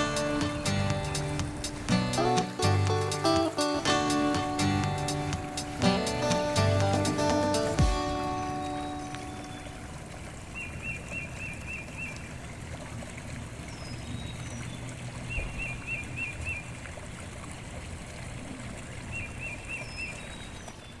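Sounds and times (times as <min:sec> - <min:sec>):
stream rushing over rapids: 0:00.0 - 0:13.6
bird singing phrase: 0:07.6 - 0:12.3.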